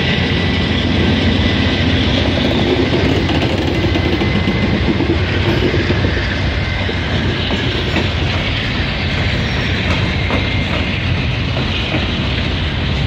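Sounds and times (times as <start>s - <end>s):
diesel locomotive engine running: 0.0s - 13.0s
train wheels clicking over rails: 0.0s - 13.0s.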